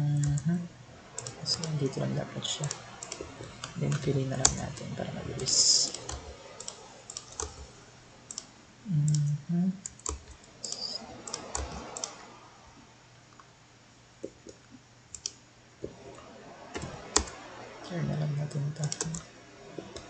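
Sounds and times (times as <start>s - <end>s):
person murmuring: 8.9s - 9.8s
mouse and keyboard clicks: 9.9s - 12.2s.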